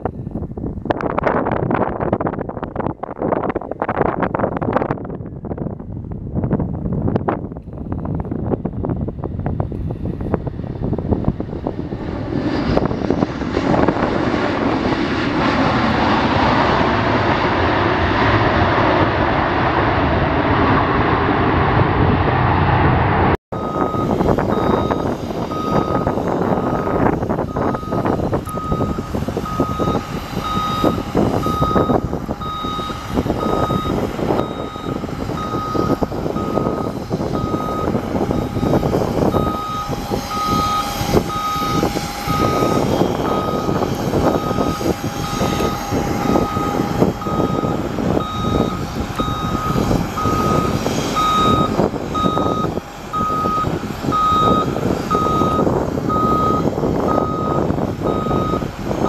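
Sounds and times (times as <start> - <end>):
vehicle rumble: 0.0 - 59.0
jet engines rushing: 6.2 - 59.0
truck reversing beeper: 23.5 - 59.0.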